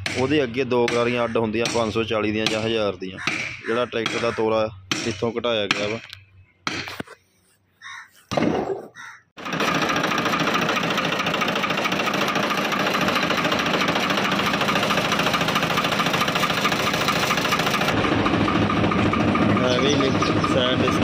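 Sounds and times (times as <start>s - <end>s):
diesel engine clattering: 9.4s - 21.0s.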